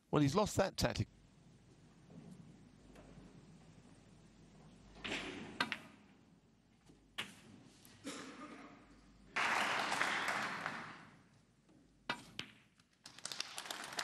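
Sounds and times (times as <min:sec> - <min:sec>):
snooker balls clicking: 0:01.7 - 0:07.6, 0:11.3 - 0:13.1
audience applauding: 0:09.3 - 0:11.2, 0:13.0 - 0:14.0.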